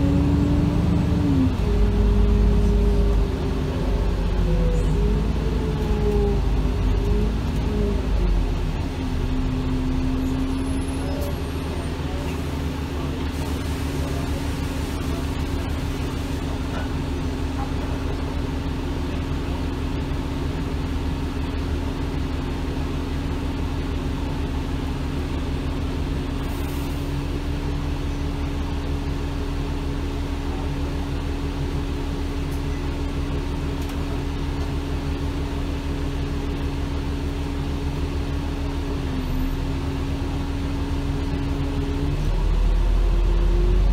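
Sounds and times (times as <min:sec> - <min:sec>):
bus engine idling: 0:00.0 - 0:43.9.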